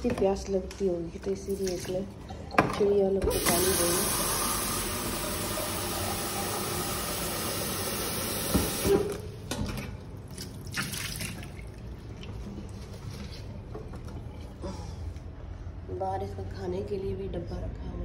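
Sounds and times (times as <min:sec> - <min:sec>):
tap water splashing into tub: 0:08.0 - 0:09.2.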